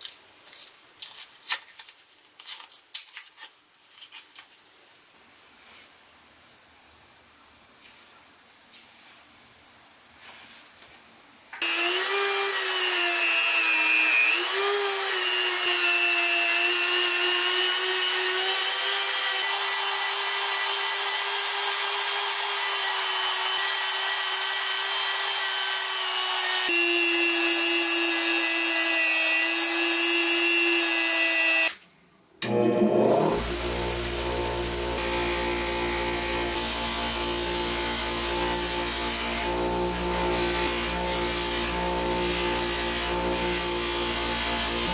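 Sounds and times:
rotary tool grinding metal: 33.0s - 44.9s.

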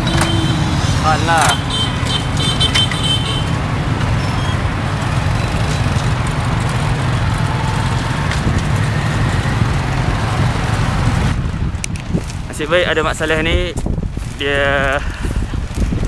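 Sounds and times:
road traffic: 0.0s - 16.0s
wind rumble on microphone: 3.4s - 16.0s.

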